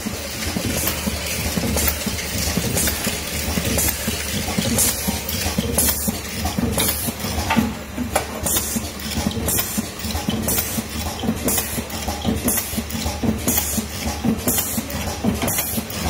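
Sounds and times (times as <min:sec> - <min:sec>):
machine hum and rattle: 0:00.0 - 0:16.0
pneumatic cylinders hissing: 0:08.4 - 0:11.8.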